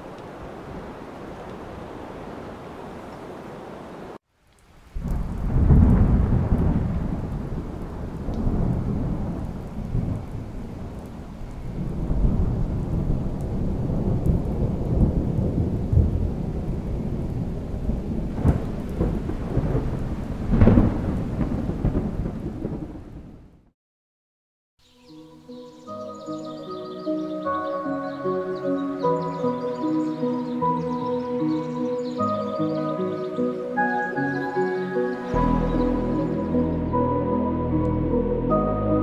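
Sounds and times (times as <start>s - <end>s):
steady rain: 0.0s - 23.5s, 25.4s - 39.0s
thunder rumbling: 4.9s - 23.6s
sharp thunder claps: 5.0s - 10.9s, 11.7s - 23.5s.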